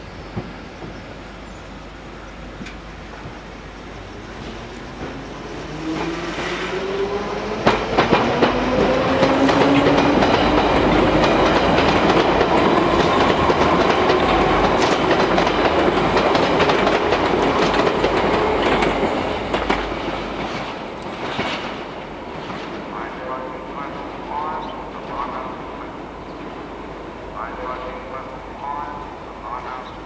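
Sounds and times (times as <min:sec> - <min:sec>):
train wheels clattering over rail joints: 0:07.5 - 0:22.9.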